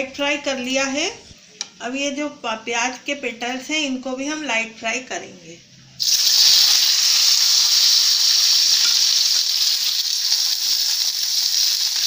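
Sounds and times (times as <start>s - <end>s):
onions sizzling in hot oil: 6.0s - 12.0s.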